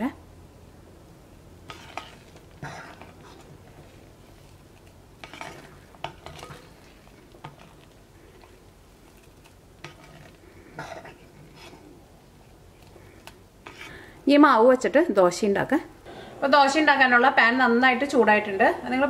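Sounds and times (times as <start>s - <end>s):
spoon stirring thick batter: 1.6s - 14.4s.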